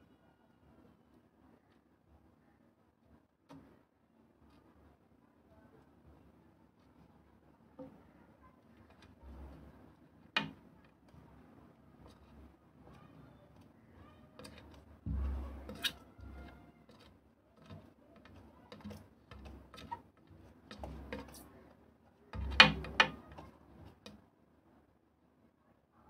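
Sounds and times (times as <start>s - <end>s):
sharp knocks and dull thumps: 10.3s - 11.3s, 14.4s - 21.6s, 22.3s - 24.2s
clicks and taps: 14.3s - 21.5s, 22.4s - 24.2s.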